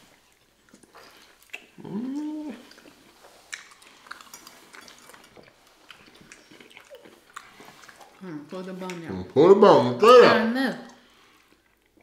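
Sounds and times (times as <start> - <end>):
people chewing: 0.0 - 12.0
wet mouth clicks: 0.7 - 8.2.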